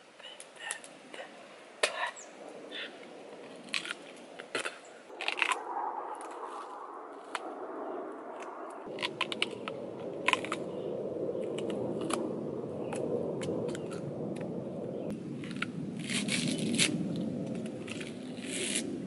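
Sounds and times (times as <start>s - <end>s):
low rushing background noise: 0.0s - 19.0s
crunchy fruit chewing: 3.6s - 4.0s, 8.9s - 10.7s.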